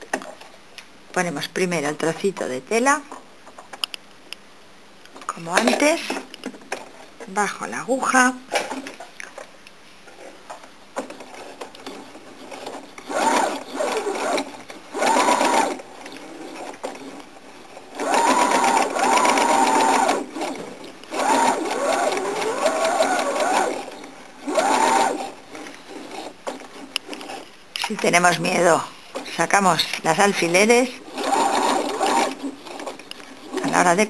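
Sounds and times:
sewing machine motor whining: 13.1 - 15.8, 18.0 - 25.4, 31.0 - 32.9.

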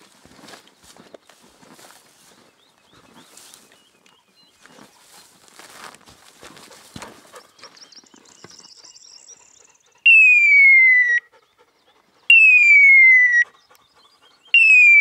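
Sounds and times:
falling electronic beeper tones: 10.1 - 11.2, 12.3 - 13.4, 14.6 - 15.0.

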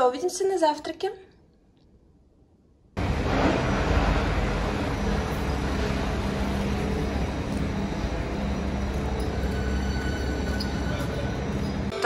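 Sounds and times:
faint hum: 2.1 - 12.0
vehicle engine rumble: 3.0 - 11.9.

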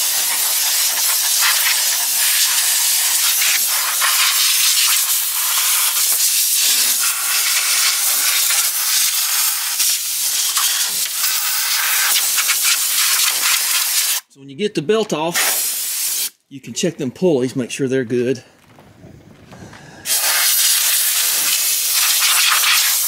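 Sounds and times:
air blow gun hissing: 0.0 - 14.2, 15.3 - 16.4, 20.0 - 23.0.

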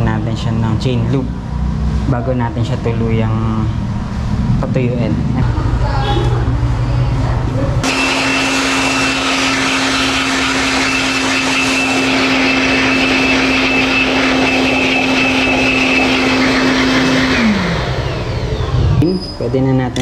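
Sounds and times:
air blower whining: 7.8 - 20.0.

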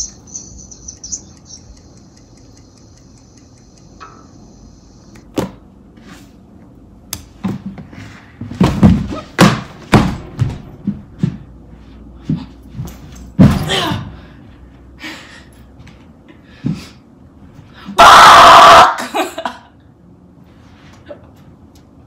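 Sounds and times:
thumps against furniture: 8.4 - 11.4.

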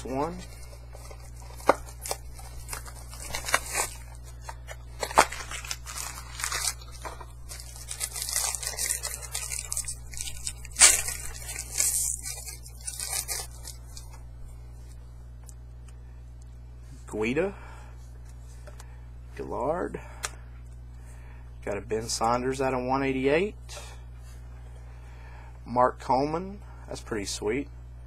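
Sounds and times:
card packaging tearing and crinkling: 0.0 - 14.2.

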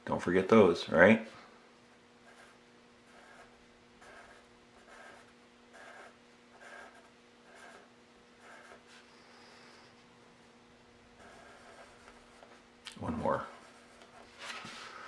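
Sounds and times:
pencil scratching on paper: 2.2 - 9.1, 11.2 - 12.6, 13.4 - 14.4.

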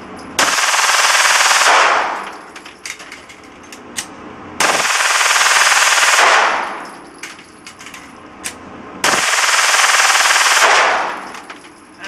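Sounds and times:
automatic pistol firing bursts: 0.4 - 2.2, 4.6 - 6.7, 9.0 - 11.3
gunfire echo: 0.4 - 2.3, 4.6 - 6.9, 9.0 - 11.3.

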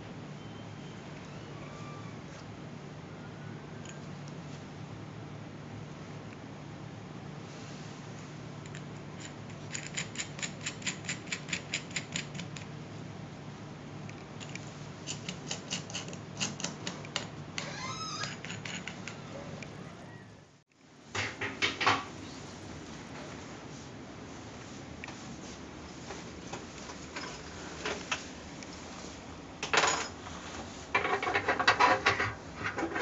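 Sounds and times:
steady low hum: 18.8 - 29.6.

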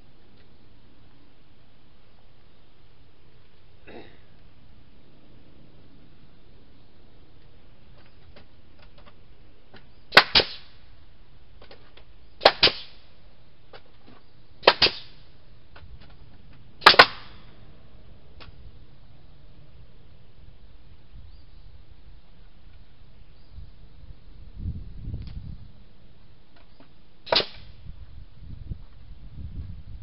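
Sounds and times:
nail gun shots: 10.1 - 10.7, 12.4 - 13.0, 14.6 - 15.2, 16.8 - 17.4, 27.3 - 27.7.

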